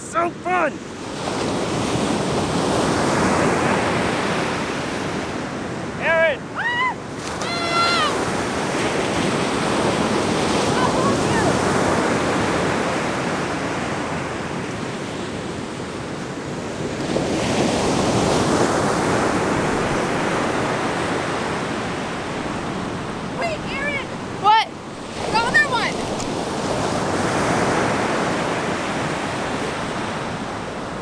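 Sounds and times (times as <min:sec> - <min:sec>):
ocean surf breaking on beach: 0:00.0 - 0:31.0
wind buffeting microphone: 0:07.1 - 0:31.0.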